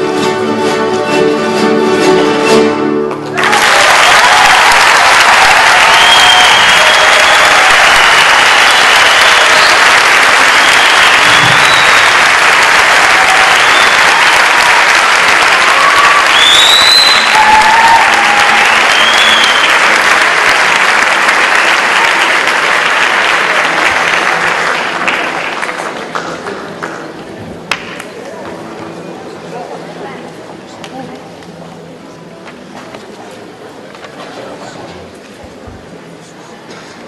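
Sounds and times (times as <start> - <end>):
audience applauding: 3.4 - 28.2
short whistle: 5.9 - 7.4, 10.6 - 12.2, 16.2 - 17.5, 18.8 - 19.8.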